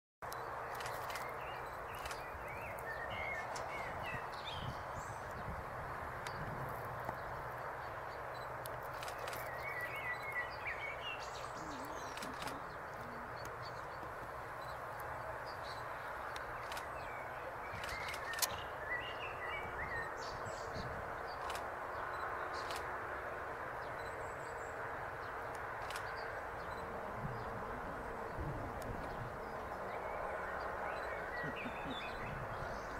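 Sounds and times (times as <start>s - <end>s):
steady outdoor hiss: 0.2s - 32.9s
sharp clicks: 0.3s - 2.9s, 8.3s - 10.4s, 12.1s - 15.1s, 16.3s - 17.0s, 17.7s - 18.6s, 21.4s - 21.7s, 22.6s - 22.9s, 25.5s - 26.2s
small birds chirping: 0.3s - 22.9s, 28.3s - 32.9s
bird chirps: 30.1s - 32.9s.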